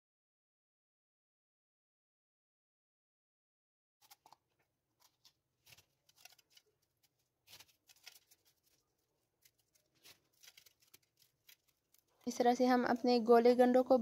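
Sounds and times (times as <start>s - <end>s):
crushed ice crunching: 5.1s - 13.2s.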